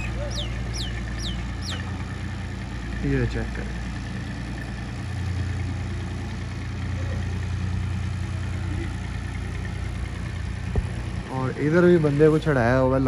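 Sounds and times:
tractor diesel engine running: 0.0s - 13.0s.

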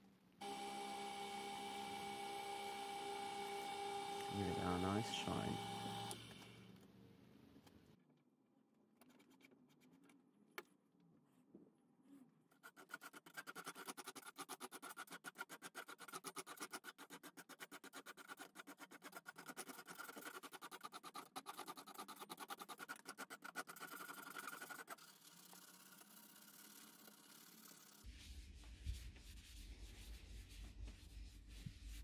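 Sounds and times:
rasp scraping wood: 12.6s - 25.0s.

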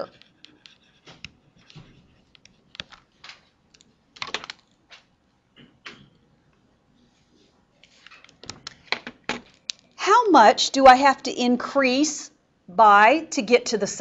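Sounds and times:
stylus tapping and scratching on screen: 0.0s - 10.0s.

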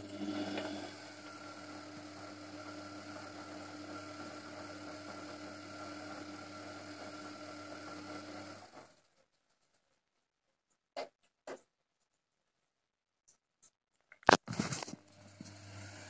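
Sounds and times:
washing machine tumbling laundry: 0.0s - 9.1s.

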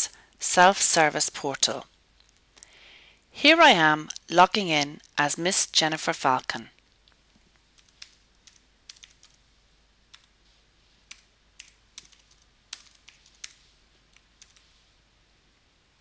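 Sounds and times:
computer keyboard typing: 7.7s - 9.4s, 10.1s - 10.3s, 11.0s - 14.7s.

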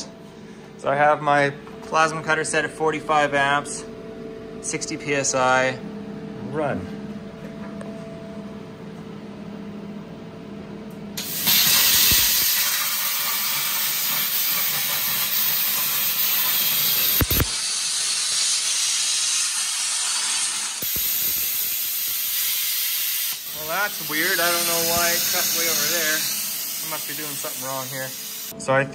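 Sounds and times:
plasma cutter hissing: 11.2s - 28.5s
sharp click: 17.1s - 17.6s.

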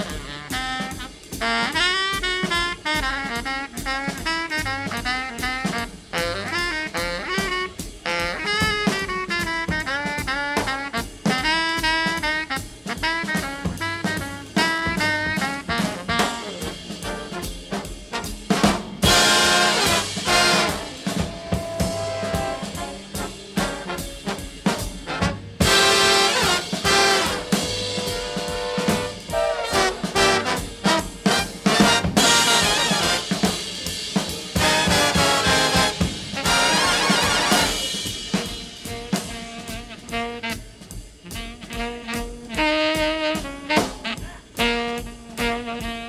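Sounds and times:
drum kit: 0.0s - 46.0s
horn melody: 0.0s - 46.0s
jazz music: 0.0s - 46.0s.

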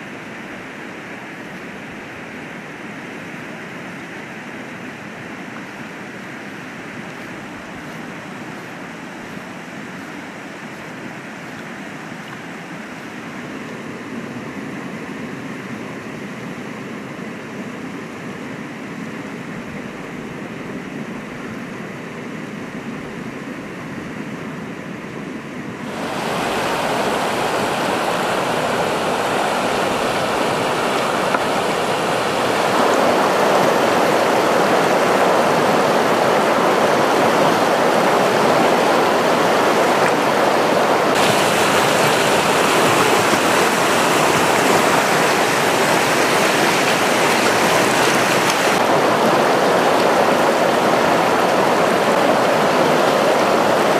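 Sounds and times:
river rushing over stones: 0.0s - 21.2s, 25.7s - 53.9s.

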